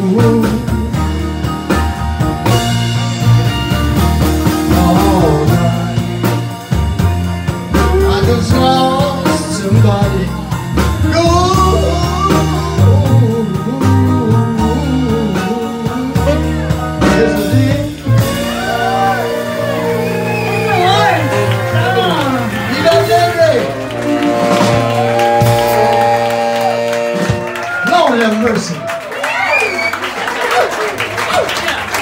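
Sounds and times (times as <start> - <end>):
man singing: 0.0 - 1.2, 4.4 - 6.6, 7.7 - 27.6
bass: 0.0 - 32.0.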